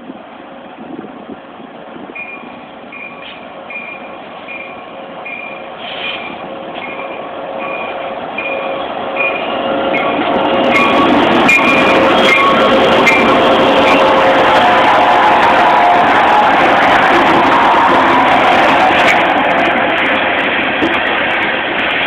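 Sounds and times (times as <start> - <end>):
diesel locomotive engine: 0.0 - 22.0
train warning bell dinging: 2.1 - 14.3.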